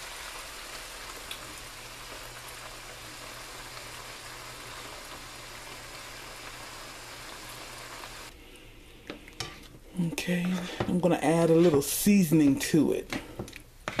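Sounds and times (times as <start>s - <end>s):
sausage and onions sizzling in skillet: 0.0s - 8.3s.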